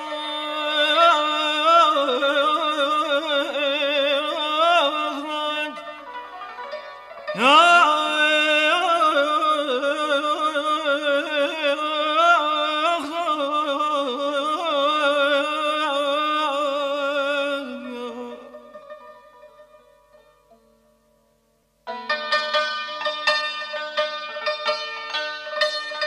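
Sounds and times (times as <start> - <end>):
man singing with vocal trills: 0.0 - 6.0, 7.3 - 18.7.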